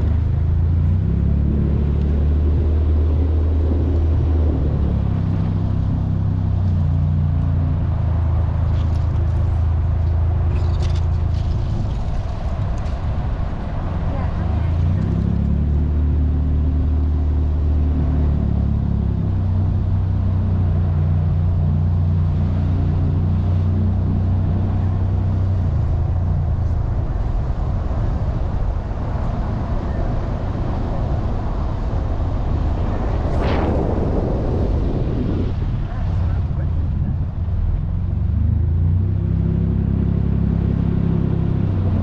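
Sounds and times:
low motor hum: 0:00.0 - 0:42.0
short rush: 0:32.8 - 0:36.8.

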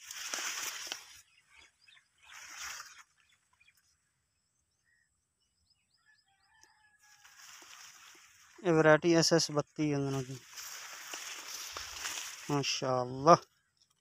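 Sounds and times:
plant leaves rustling: 0:00.0 - 0:01.3, 0:02.2 - 0:03.2, 0:07.2 - 0:08.8, 0:10.0 - 0:13.3
faint bird chirps: 0:01.0 - 0:07.7.

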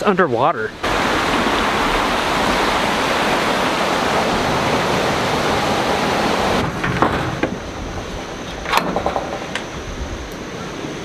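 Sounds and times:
flooded creek rushing: 0:00.0 - 0:08.6.

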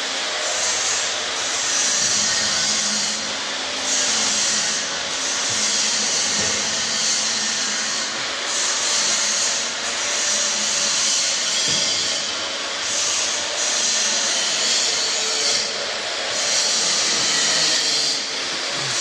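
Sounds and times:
machine hiss: 0:03.8 - 0:19.0.

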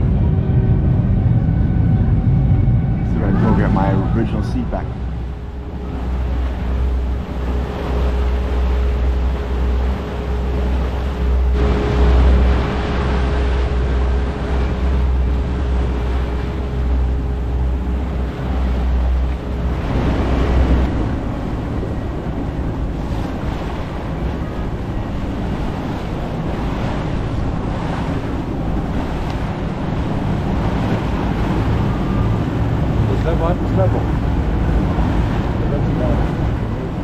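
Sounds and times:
heavy low rumble: 0:00.0 - 0:37.0
water rushing past boat hull: 0:00.0 - 0:37.0
wind buffeting microphone: 0:00.0 - 0:37.0.

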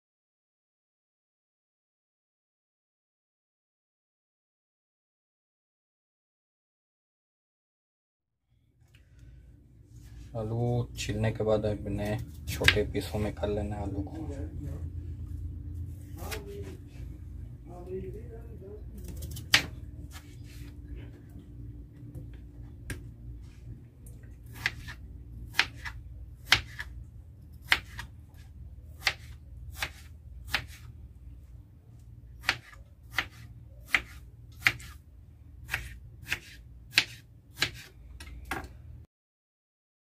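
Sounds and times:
steady low hum: 0:08.5 - 0:39.1
knife chopping on plastic board: 0:24.5 - 0:26.9, 0:27.6 - 0:28.1, 0:29.0 - 0:30.8, 0:32.4 - 0:35.0, 0:35.7 - 0:37.9.

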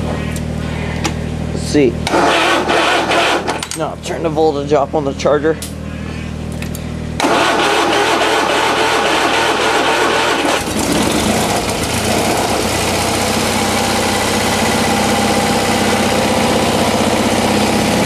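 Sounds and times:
engine idling: 0:00.0 - 0:18.0
starter motor cranking: 0:02.0 - 0:03.9, 0:07.2 - 0:18.0.

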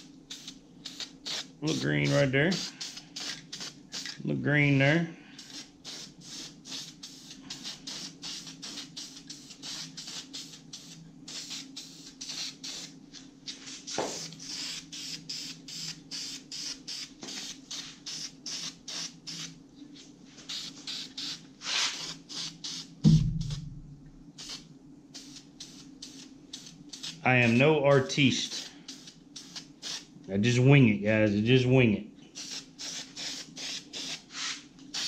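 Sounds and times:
spray paint can hissing: 0:00.0 - 0:04.2, 0:05.4 - 0:19.6, 0:20.4 - 0:23.6, 0:24.4 - 0:30.1, 0:32.4 - 0:35.0
steady low hum: 0:00.0 - 0:35.0
thump: 0:23.0 - 0:23.9.

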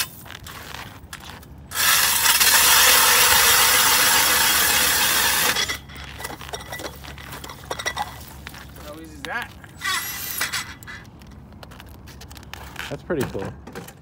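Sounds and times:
ice auger rasping through ice: 0:01.7 - 0:07.0, 0:09.8 - 0:11.0.

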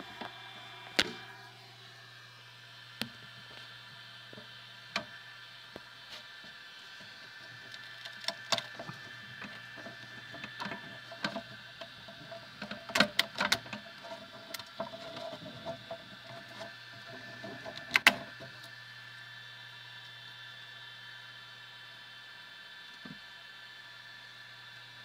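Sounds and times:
three d printer humming: 0:00.0 - 0:20.7
sharp clicks and knocks: 0:07.7 - 0:16.7, 0:17.4 - 0:18.5.

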